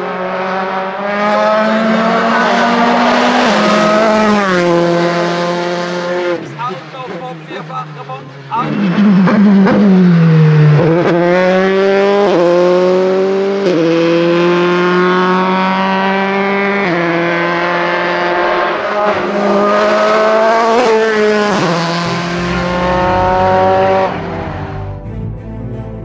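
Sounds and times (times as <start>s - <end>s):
racing car engine at full throttle: 0.0s - 26.0s.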